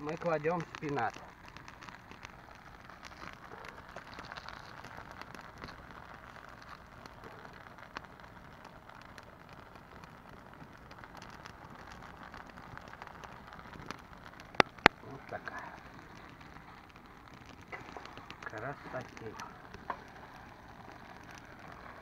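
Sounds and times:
cream sauce simmering in a pan: 0.0 - 22.0.

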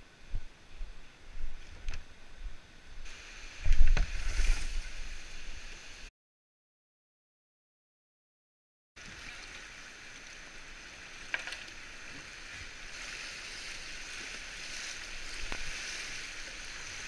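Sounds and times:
river rapids rushing: 9.8 - 17.0.

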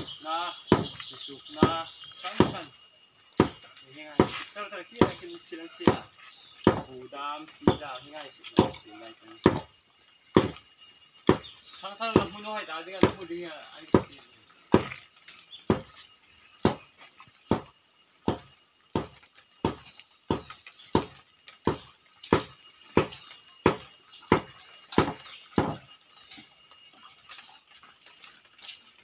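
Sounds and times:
sharp knocks: 0.7 - 1.0, 5.8 - 6.9, 9.4 - 9.7, 10.3 - 10.6, 17.5 - 25.9.

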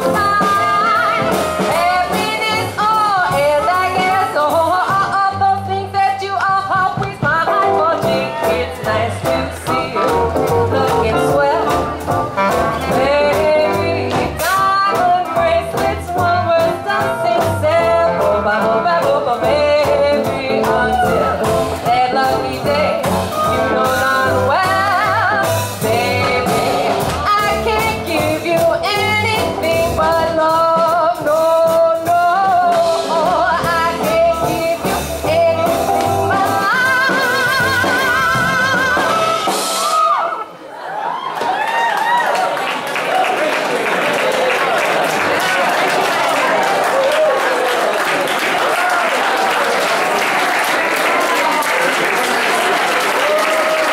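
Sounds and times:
swing jazz band playing: 0.0 - 40.2
clarinet melody: 9.7 - 14.1.

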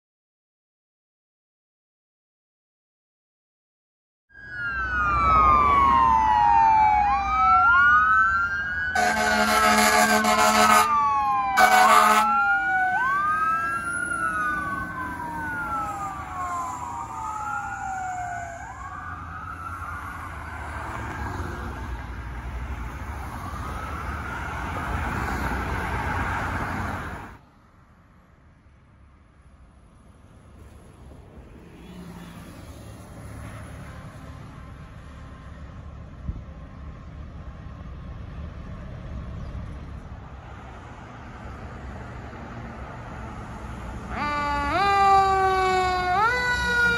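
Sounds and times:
fire truck siren wailing: 4.3 - 27.4, 42.6 - 46.9
horn blasts: 9.0 - 11.0, 11.6 - 12.4.

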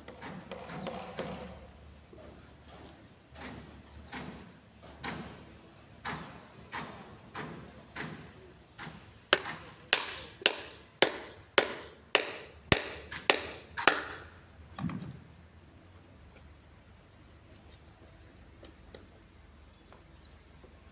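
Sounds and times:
hand hammer striking: 9.4 - 14.1.

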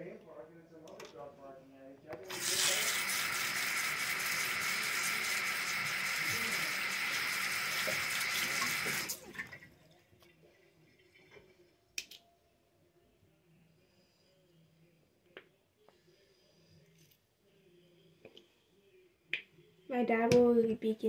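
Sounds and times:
tap water running: 2.3 - 9.6.

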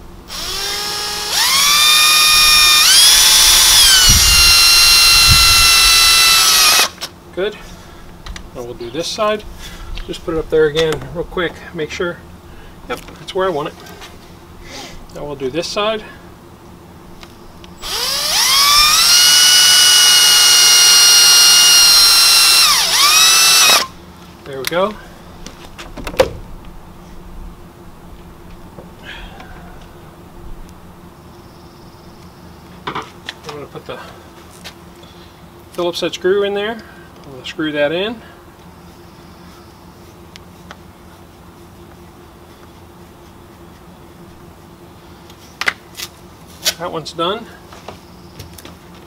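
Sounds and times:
cordless drill motor whine: 0.3 - 7.0, 17.8 - 24.0.

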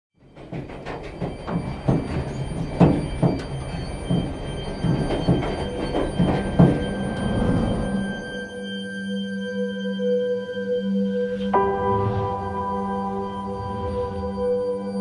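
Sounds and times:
ringing musical drone: 0.4 - 15.0
low rumble: 11.5 - 15.0.

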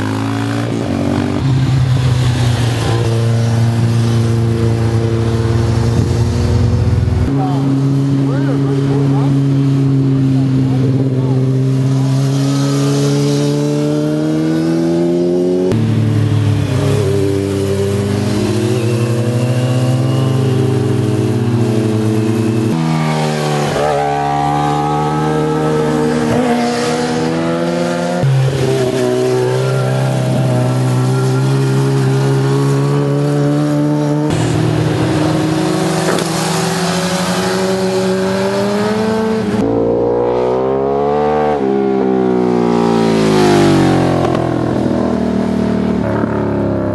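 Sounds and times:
motorcycle engines revving: 0.0 - 46.9.

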